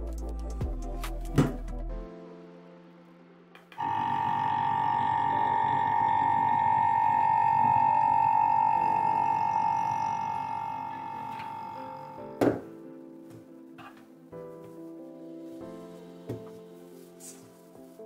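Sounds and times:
curing machine whine and hiss: 3.8s - 12.3s.

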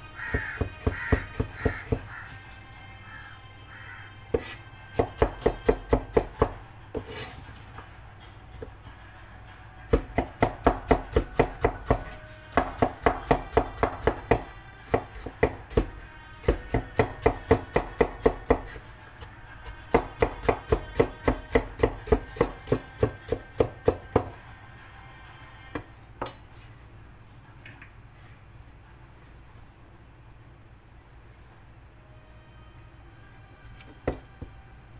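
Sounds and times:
knife chopping on cutting board: 4.3s - 7.3s, 9.9s - 18.8s, 19.9s - 24.3s.

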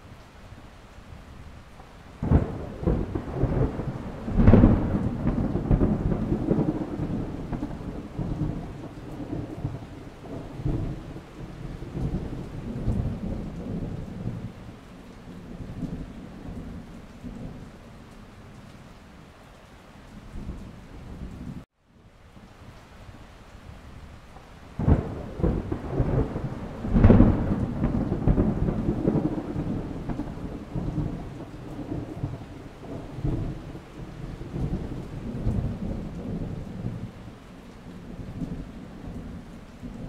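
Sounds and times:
steady rain: 0.0s - 40.0s
sharp thunderclap: 2.2s - 14.5s, 24.8s - 33.6s
rolling thunder rumbles: 2.2s - 18.4s, 24.7s - 40.0s.

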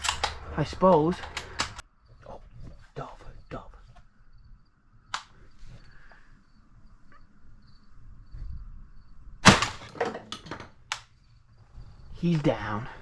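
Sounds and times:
crickets chirping: 0.0s - 13.0s
loud shotgun shot: 9.4s - 9.9s.

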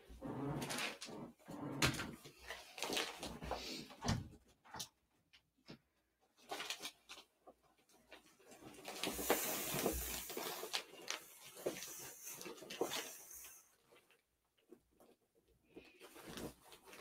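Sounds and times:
handling rustling: 15.7s - 17.0s.

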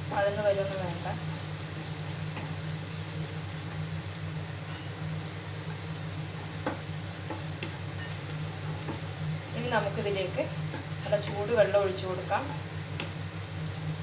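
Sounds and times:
food sizzling in oil: 0.0s - 14.0s
steady low hum: 0.0s - 14.0s
spatula tapping pan: 6.6s - 7.8s.

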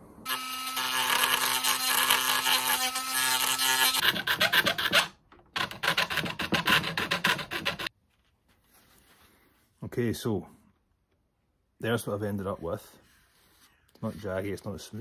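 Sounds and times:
hand tool scraping plastic: 3.8s - 7.9s.

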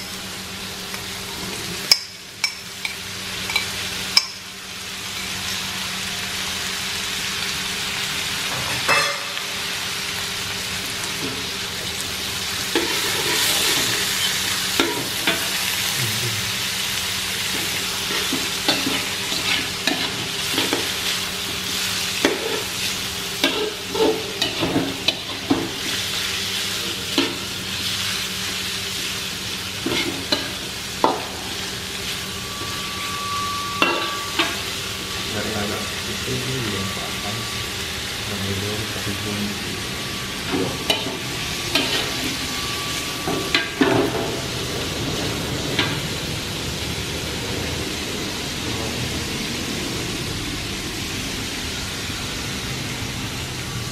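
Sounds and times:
food sizzling in a wok: 0.0s - 53.9s
metal spatula scraping a pan: 18.0s - 21.2s, 40.9s - 42.4s.

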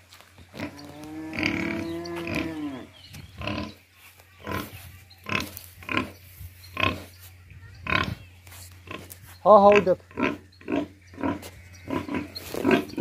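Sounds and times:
pigs calling: 0.6s - 3.8s, 8.9s - 13.0s.

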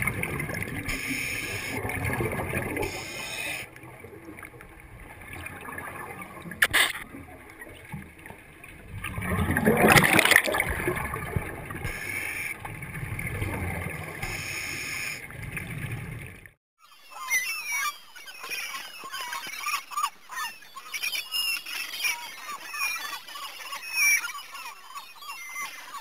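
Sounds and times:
underwater bubbling: 0.0s - 16.6s.

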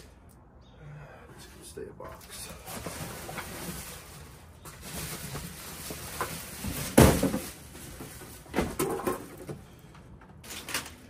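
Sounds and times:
cardboard box knocks and scuffs: 6.7s - 7.4s
box thumping on pavement: 6.9s - 7.6s.

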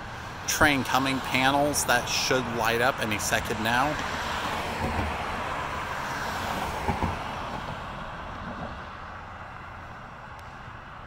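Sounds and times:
car driving past: 4.0s - 11.0s.

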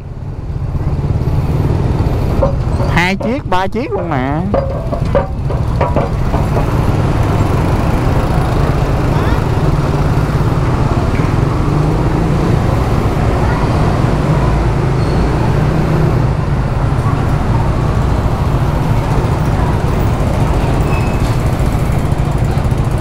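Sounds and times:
many motorbike engines rumbling: 0.0s - 23.0s.

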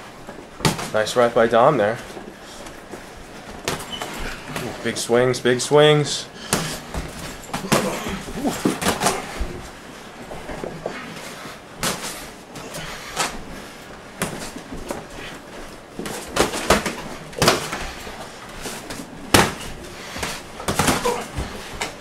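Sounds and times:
boxing gloves thudding and slapping: 0.3s - 1.1s, 2.6s - 4.8s, 6.5s - 10.9s, 11.8s - 22.0s.

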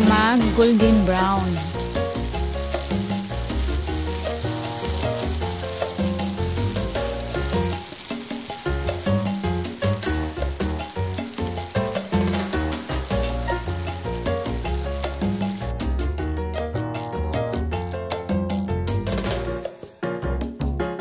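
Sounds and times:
tofu sizzling in hot oil: 0.0s - 16.2s
background music with bass: 0.0s - 21.0s.

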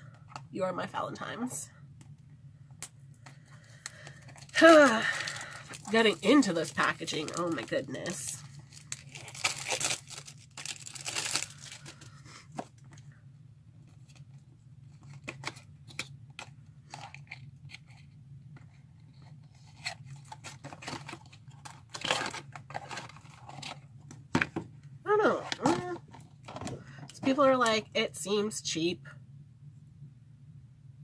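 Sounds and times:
packaging tearing: 3.8s - 12.1s, 19.7s - 23.8s.

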